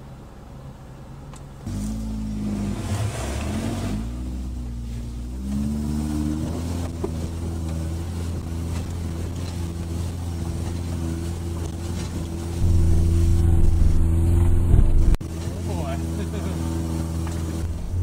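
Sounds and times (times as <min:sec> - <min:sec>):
car engine under load: 0:00.0 - 0:18.0.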